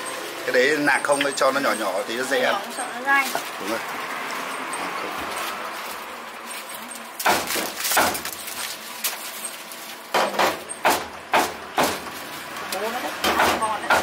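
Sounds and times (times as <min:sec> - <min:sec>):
aluminium foil crinkling: 0:05.4 - 0:10.2.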